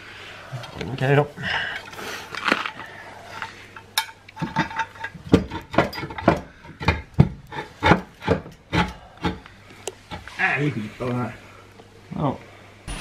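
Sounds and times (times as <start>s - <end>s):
metal clinking and knocking: 4.0s - 8.6s.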